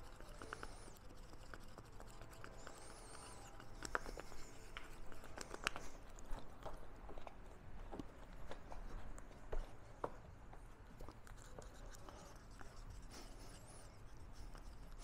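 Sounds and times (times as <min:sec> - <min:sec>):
stick stirring in plastic cup: 0:00.0 - 0:09.0.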